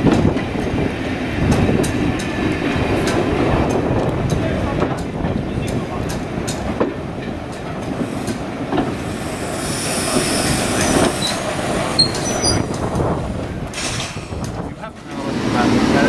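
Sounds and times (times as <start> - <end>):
train wheels rumbling on track: 0.0 - 16.0
wheel squeal on rails: 9.2 - 12.8.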